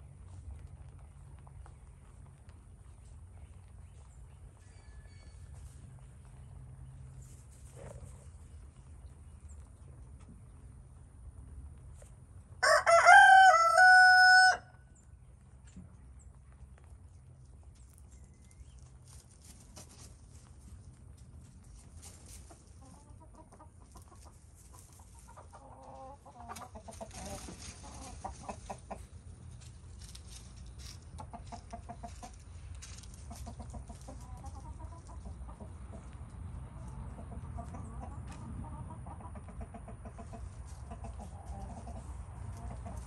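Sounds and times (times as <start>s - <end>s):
rabbits rustling in straw: 0.0s - 10.4s, 15.6s - 36.2s, 40.1s - 43.0s
hens clucking: 19.6s - 43.0s.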